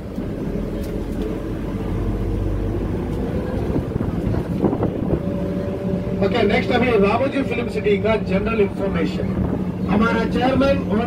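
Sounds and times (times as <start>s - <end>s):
vehicle rumble from inside: 0.0s - 11.0s
wind on microphone: 3.3s - 6.2s, 9.0s - 10.8s.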